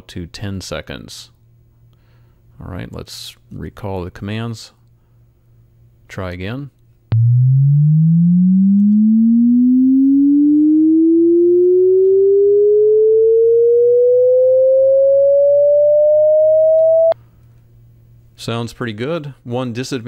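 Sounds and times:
sine tone sweeping upward: 7.1 - 17.2
click: 8.8 - 9.0.

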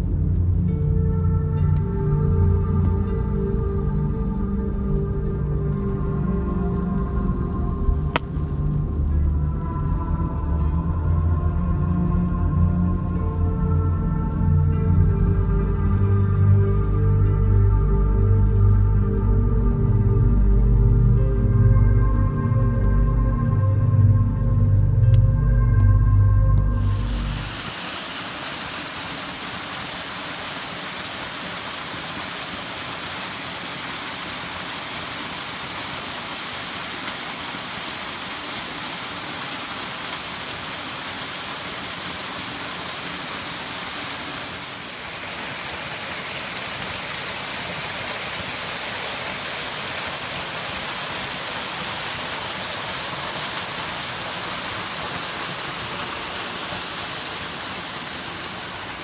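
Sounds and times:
stream running over stones: 5.6 - 8.8, 26.6 - 59.0
waterfall splashing onto rocks: 26.8 - 59.0.

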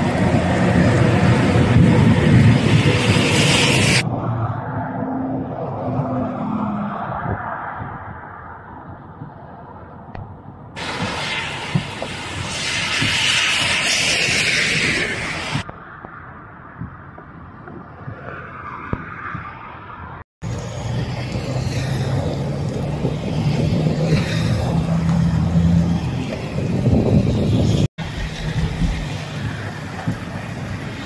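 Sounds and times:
heavy rain on pavement: 0.0 - 4.0, 10.8 - 15.6, 20.4 - 31.0
vehicle engine humming: 20.4 - 31.0.

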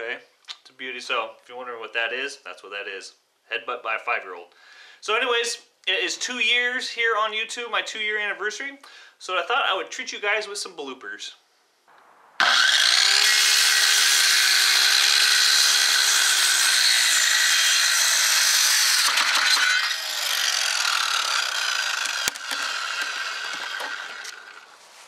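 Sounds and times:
circular saw cutting wood: 12.4 - 24.8.

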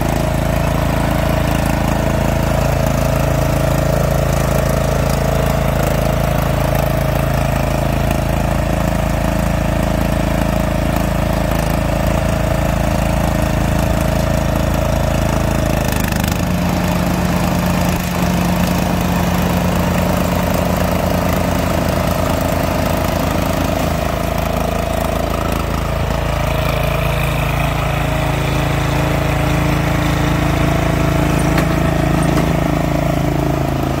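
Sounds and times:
lawn mower engine running: 0.0 - 34.0.

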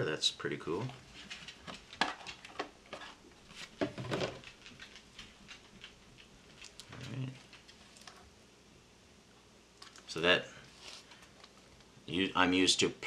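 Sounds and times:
plastic rustling and tapping: 0.8 - 6.9.

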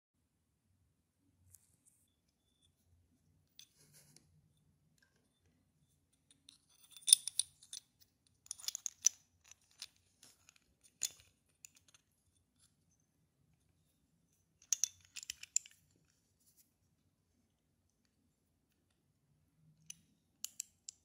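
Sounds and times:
metal parts clicking and rattling: 6.7 - 12.0, 14.6 - 15.8.

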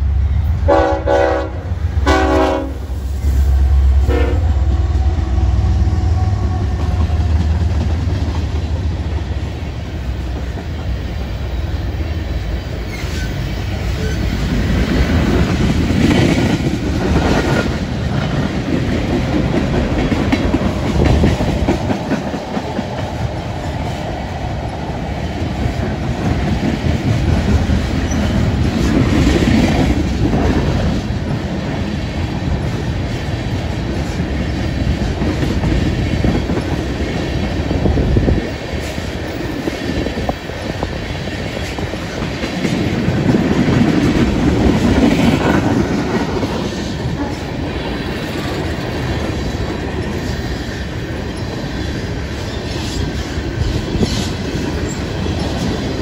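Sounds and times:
train wheels rumbling on rails: 0.0 - 56.0
wheels clickety-clack: 12.9 - 56.0.

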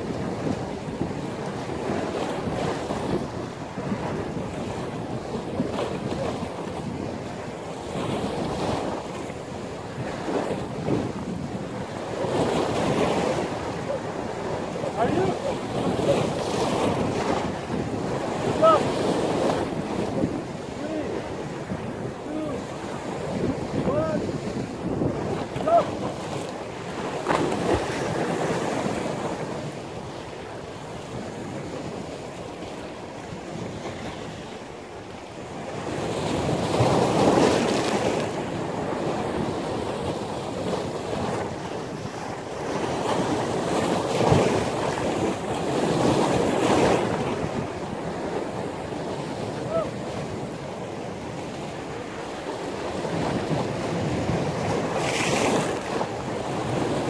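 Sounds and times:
wind buffeting microphone: 0.0 - 34.4
surf breaking: 11.9 - 29.4.

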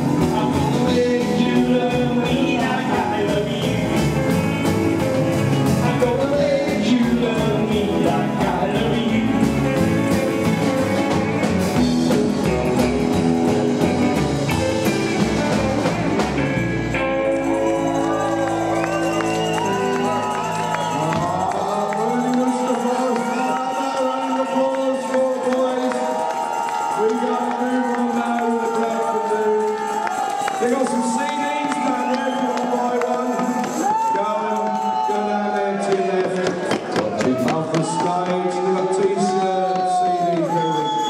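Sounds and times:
male lead vocal: 0.0 - 4.8, 5.7 - 10.4, 20.2 - 26.0
double bass: 0.0 - 22.3
electric guitar: 0.0 - 24.0
drums: 0.0 - 41.0.

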